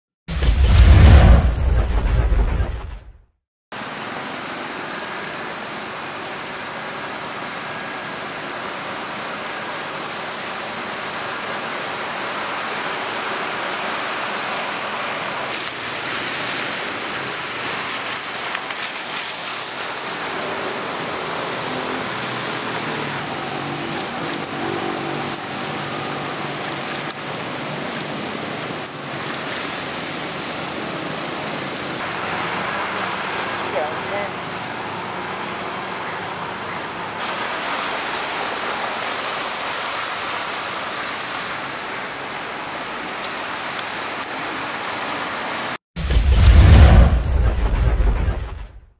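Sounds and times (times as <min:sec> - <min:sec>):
rain hiss: 0:03.8 - 0:48.6
tyres splashing through water: 0:11.9 - 0:46.7.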